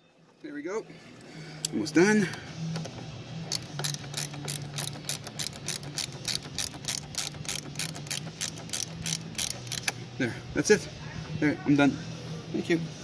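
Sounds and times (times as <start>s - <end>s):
ratchet wrench clicking: 2.8s - 10.0s.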